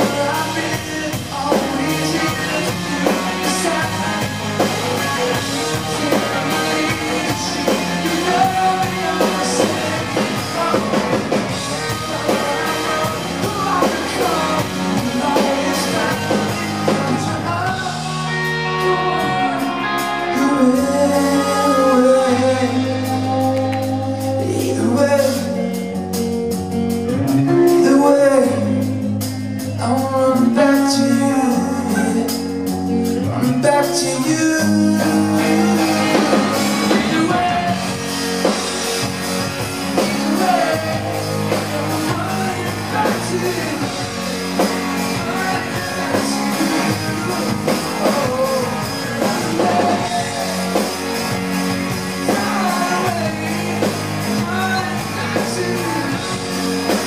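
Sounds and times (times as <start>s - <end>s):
live rock band playing: 0.0s - 57.0s
man singing lead vocal: 0.0s - 57.0s.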